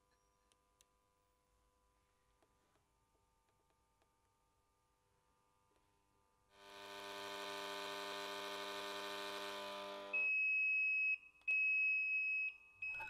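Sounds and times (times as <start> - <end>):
electrical mains hum: 6.6 - 10.3.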